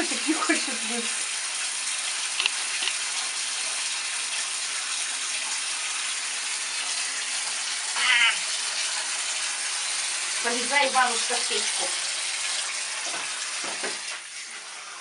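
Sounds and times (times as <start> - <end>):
water running into bathtub: 0.0 - 15.0
short high cry: 8.0 - 8.4.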